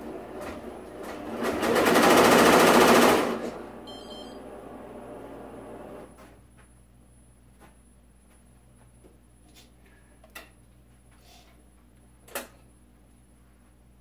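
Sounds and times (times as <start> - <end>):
short high beeps: 3.8 - 4.4.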